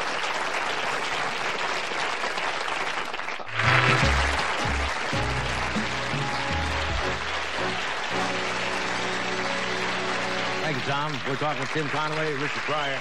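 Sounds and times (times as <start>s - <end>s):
audience applauding: 0.0s - 13.0s
band music with bass line: 3.5s - 10.7s.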